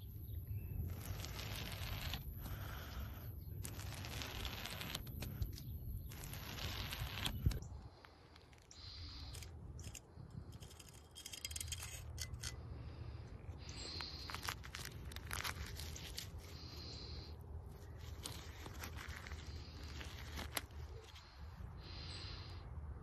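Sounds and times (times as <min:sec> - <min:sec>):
balloon rubber tearing and peeling: 0:00.8 - 0:07.6, 0:13.9 - 0:16.7, 0:17.9 - 0:21.2
rubbery scraping: 0:00.8 - 0:07.6, 0:17.8 - 0:21.4
sharp ice crackles: 0:00.8 - 0:12.6, 0:13.6 - 0:22.4.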